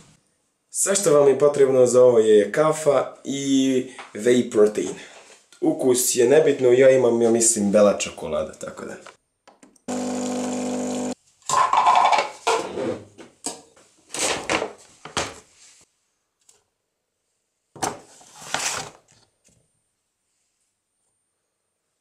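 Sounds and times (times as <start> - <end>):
coffee machine pump humming: 9.9 - 11.2.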